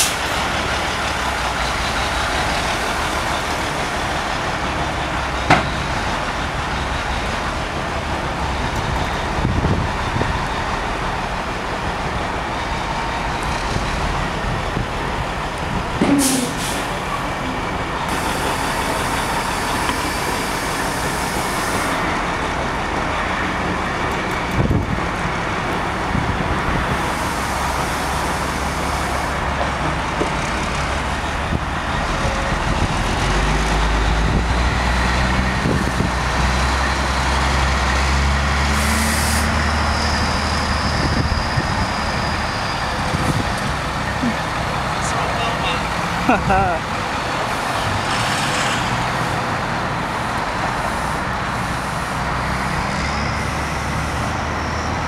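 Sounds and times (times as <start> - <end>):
truck diesel engine running: 0.0 - 55.0
air brakes hissing: 16.0 - 17.0, 18.1 - 22.0, 38.7 - 43.4.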